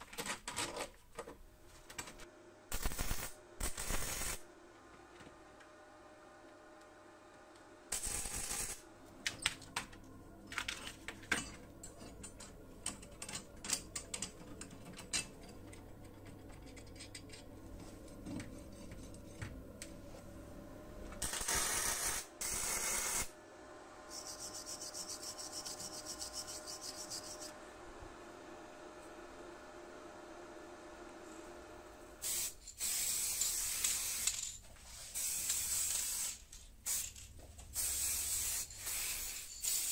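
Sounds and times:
tack welding: 0:02.7 - 0:04.5, 0:07.9 - 0:09.5, 0:21.2 - 0:23.3
hissing bursts: 0:32.2 - 0:34.3, 0:35.0 - 0:39.9.

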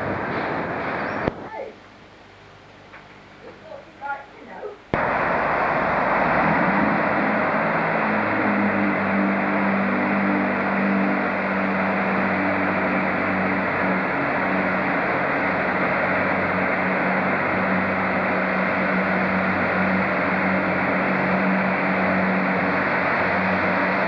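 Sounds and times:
diesel train engine hum: 0:00.0 - 0:24.0
even rushing noise: 0:05.0 - 0:24.0.

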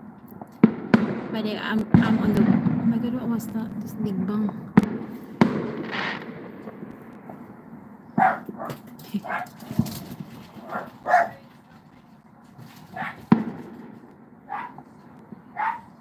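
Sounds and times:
firework bangs: 0:00.4 - 0:16.0
dogs barking: 0:08.2 - 0:09.7, 0:10.6 - 0:11.4, 0:12.9 - 0:13.3, 0:14.5 - 0:14.8, 0:15.5 - 0:16.0.

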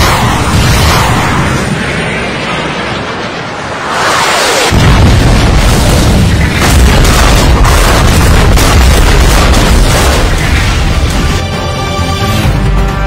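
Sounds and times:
deep rumbling explosion: 0:00.0 - 0:04.0, 0:04.6 - 0:11.4
rushing whoosh: 0:01.2 - 0:05.0.

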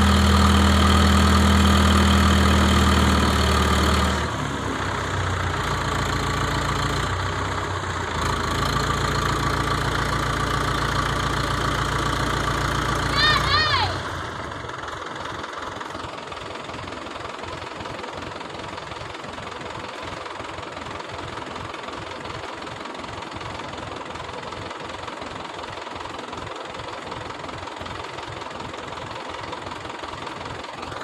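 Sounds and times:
diesel engine idling with knocking: 0:00.0 - 0:31.0.

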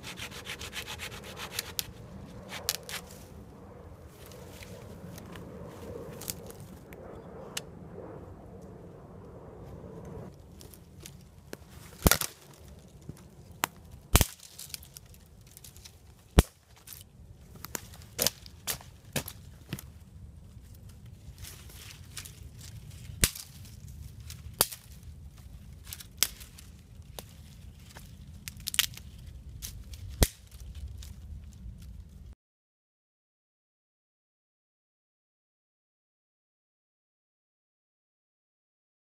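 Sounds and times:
sticks cracking and breaking: 0:02.5 - 0:03.2, 0:10.5 - 0:20.0, 0:21.4 - 0:32.0.

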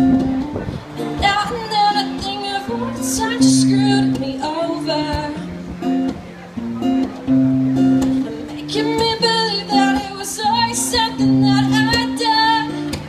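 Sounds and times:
acoustic guitar chords: 0:00.0 - 0:13.0
woman singing: 0:01.0 - 0:05.4, 0:08.5 - 0:13.0.

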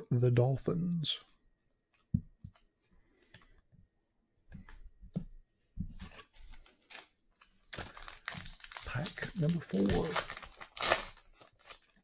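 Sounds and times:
cards rustling: 0:06.0 - 0:12.0.

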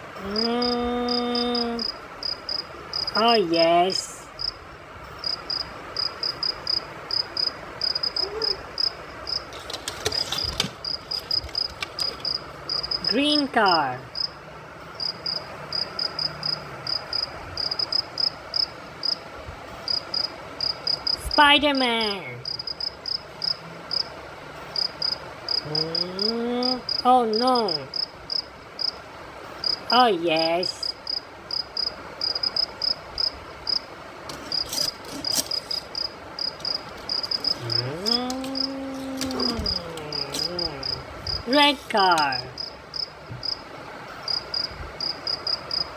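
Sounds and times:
cricket chirping: 0:00.2 - 0:19.2, 0:19.8 - 0:21.4, 0:22.4 - 0:29.0, 0:29.6 - 0:45.9
person's long vocal note: 0:25.6 - 0:26.7, 0:37.6 - 0:41.1.

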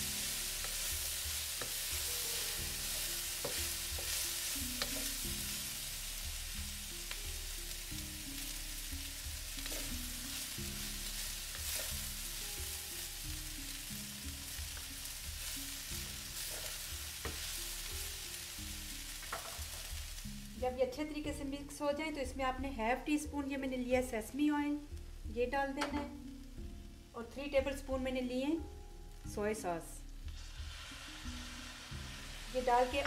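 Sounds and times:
food sizzling in hot oil: 0:00.0 - 0:21.8, 0:28.6 - 0:33.0
spatula scraping and knocking pan: 0:00.4 - 0:05.7, 0:16.3 - 0:17.7, 0:19.2 - 0:19.9.

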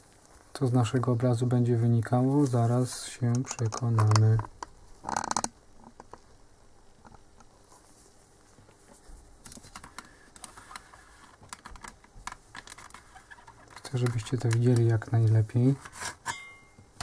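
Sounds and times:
light clicks and tapping: 0:13.7 - 0:15.1.

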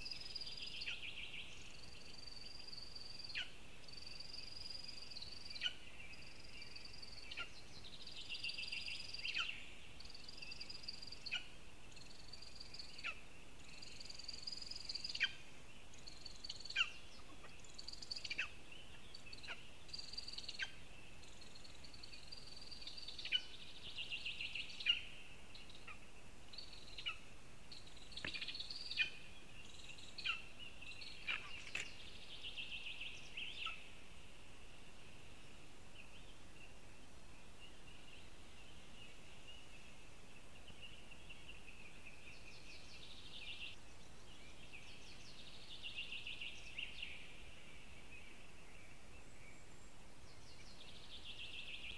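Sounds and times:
birds singing: 0:00.0 - 0:51.9
faint background hiss: 0:00.0 - 0:51.9.

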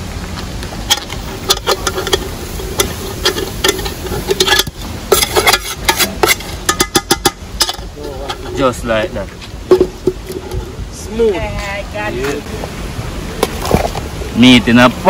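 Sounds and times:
metal spoon scraping pot: 0:00.9 - 0:09.0, 0:09.7 - 0:10.8.

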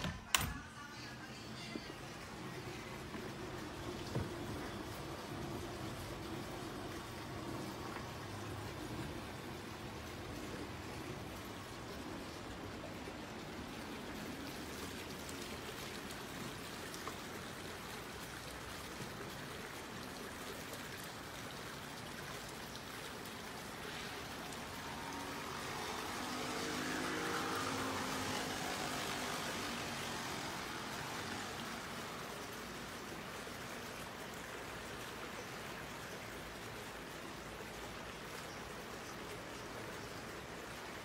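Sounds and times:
running and falling water: 0:00.0 - 0:41.0
vehicle passing: 0:23.8 - 0:33.3.

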